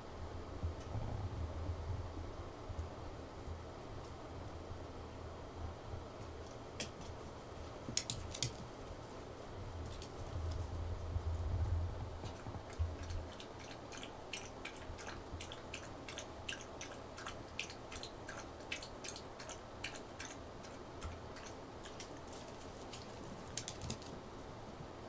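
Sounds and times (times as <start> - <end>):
dog making quick clicks: 22.9 - 24.1.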